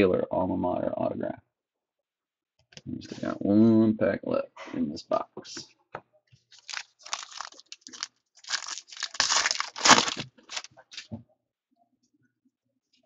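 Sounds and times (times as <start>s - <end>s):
foil wrapper tearing and crinkling: 6.6s - 11.1s.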